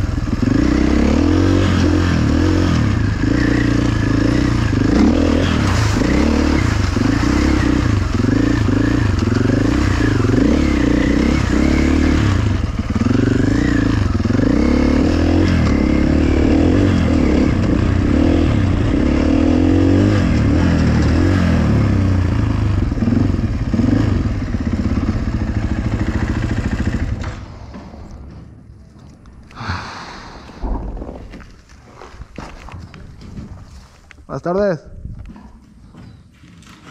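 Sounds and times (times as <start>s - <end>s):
dirt bike engine revving: 0.0s - 28.4s.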